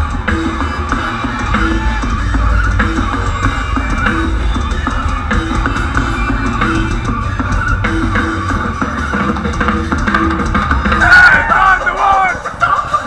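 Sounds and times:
bass guitar: 0.0s - 13.0s
distorted electric guitars: 0.0s - 13.0s
drum kit: 0.0s - 13.0s.

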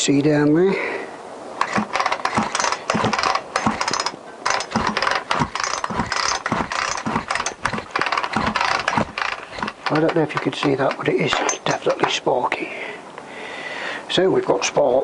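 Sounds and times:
chainsaw recoil starter ratcheting: 1.6s - 12.2s
engine spinning over clattering: 1.6s - 12.2s.

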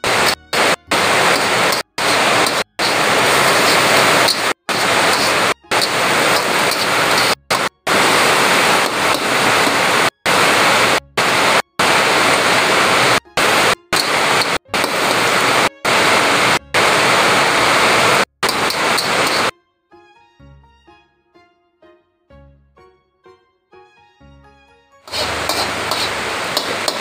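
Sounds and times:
vegetables sizzling in oil: 0.0s - 19.5s, 25.1s - 27.0s.

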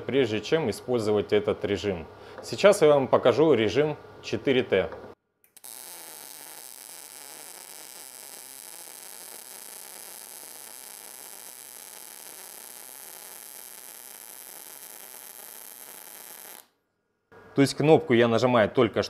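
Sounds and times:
welding arc hissing: 5.5s - 16.7s.

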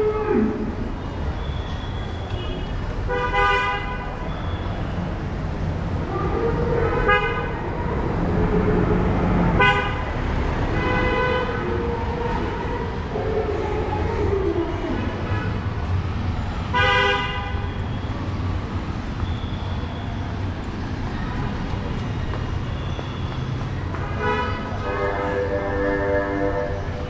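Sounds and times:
rumble of engines: 0.0s - 27.0s
vehicle horns honking: 1.5s - 4.7s, 9.6s - 11.7s, 16.7s - 17.8s, 24.0s - 27.0s.

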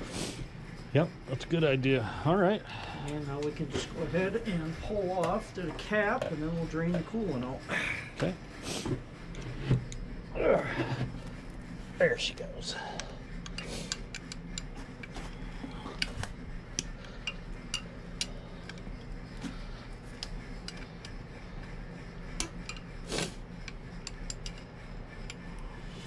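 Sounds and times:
light clicks and clatter of parts: 12.8s - 23.0s.

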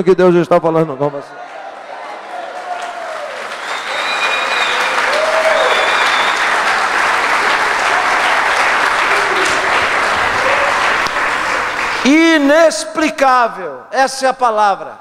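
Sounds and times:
congregation applauding: 1.3s - 12.8s.

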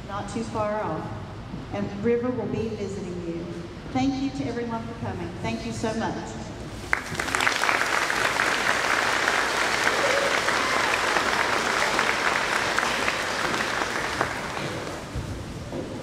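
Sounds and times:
audience applauding: 6.9s - 15.3s.

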